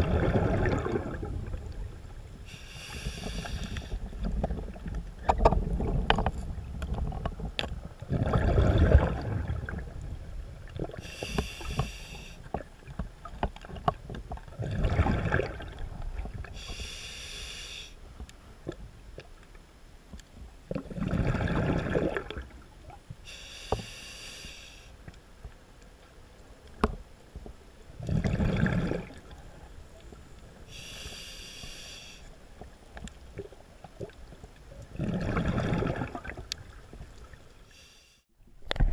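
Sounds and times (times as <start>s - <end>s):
exhaled bubbles rushing: 0.0s - 2.0s, 8.1s - 10.0s, 14.5s - 16.5s, 20.7s - 22.5s, 28.0s - 29.3s, 34.9s - 36.5s
hissing regulator inhale: 2.5s - 4.0s, 11.0s - 12.4s, 16.6s - 18.0s, 23.2s - 25.0s, 30.7s - 32.3s, 37.7s - 38.3s.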